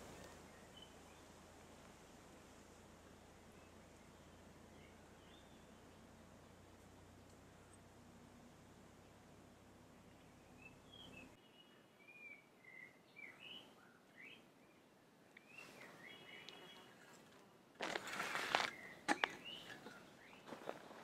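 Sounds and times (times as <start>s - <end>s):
small birds chirping: 0.0s - 1.4s, 3.0s - 7.9s, 8.9s - 17.0s, 17.8s - 21.0s
rustling crunch: 17.8s - 21.0s.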